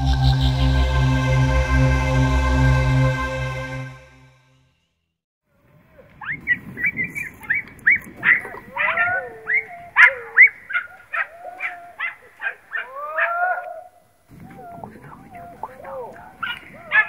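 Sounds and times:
dogs yelping: 7.4s - 17.0s.

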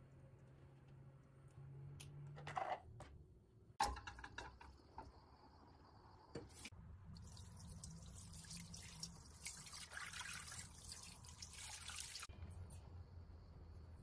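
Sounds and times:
water pouring into a steel pot: 7.1s - 12.3s.

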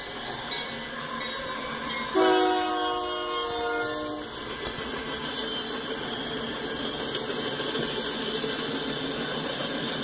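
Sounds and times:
freight train rumbling past: 0.0s - 10.0s
locomotive air horn blast: 2.1s - 4.3s.

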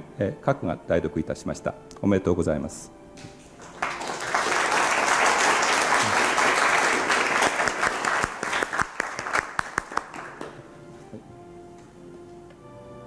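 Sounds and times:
audience applauding: 3.4s - 10.6s.

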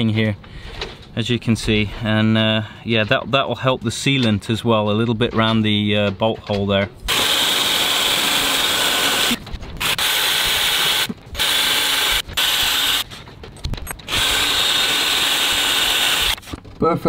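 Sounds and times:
cordless drill drilling fibreglass: 7.1s - 13.1s, 14.0s - 16.6s.

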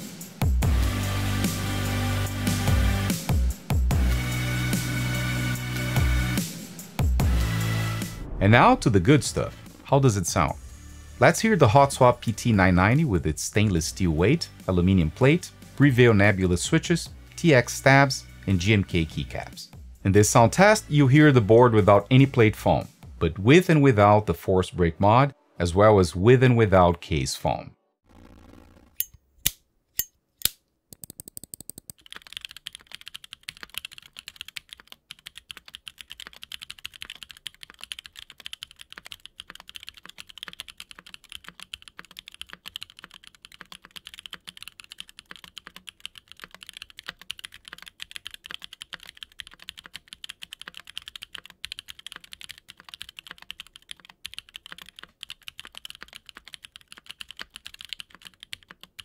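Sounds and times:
clacky mechanical keyboard typing: 31.0s - 59.0s.

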